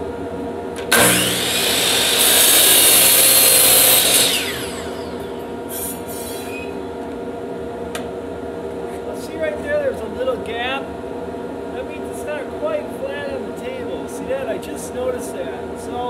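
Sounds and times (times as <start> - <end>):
miter saw cutting wood: 0.8 - 6.5
saw blade spinning down whine: 0.9 - 6.8.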